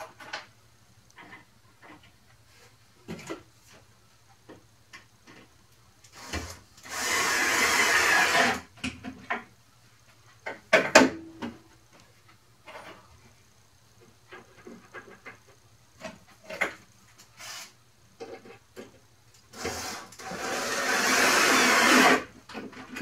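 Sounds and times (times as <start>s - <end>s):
cordless drill driving screw: 6.2s - 8.6s, 19.6s - 22.2s.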